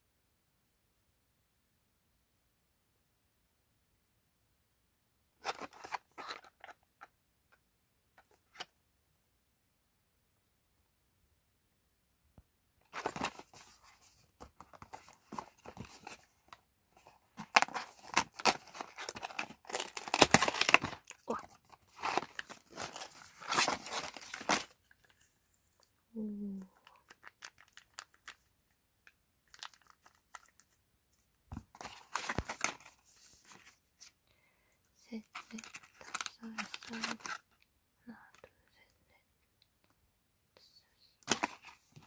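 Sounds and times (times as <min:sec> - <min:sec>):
packaging rustling and tearing: 0:05.4 - 0:06.7, 0:12.9 - 0:16.3, 0:17.0 - 0:25.2, 0:26.9 - 0:28.4, 0:29.4 - 0:30.8, 0:31.7 - 0:33.7, 0:35.3 - 0:37.4, 0:41.2 - 0:41.9.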